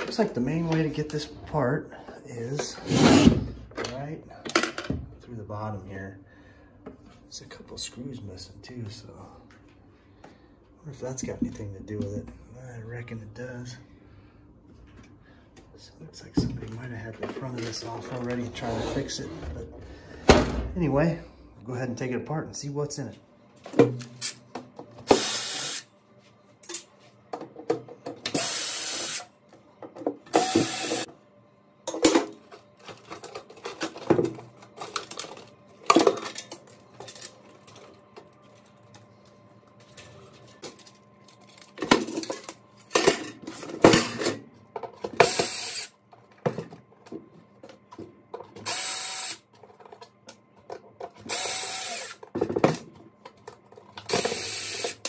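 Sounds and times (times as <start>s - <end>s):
cordless drill running: 25.1s - 25.8s, 28.3s - 29.3s, 30.3s - 31.1s, 45.2s - 45.9s, 48.6s - 49.4s, 51.3s - 52.2s, 54.1s - 55.0s
knocks and clatter of parts: 52.2s - 54.4s.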